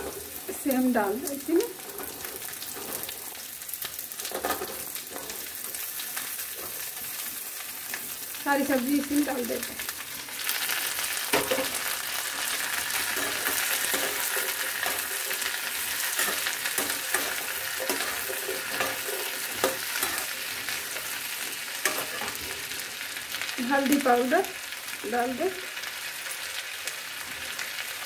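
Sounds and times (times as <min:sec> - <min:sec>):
vegetables sizzling in oil: 0:00.0 - 0:28.0
metal ladle scraping pan: 0:12.8 - 0:21.1.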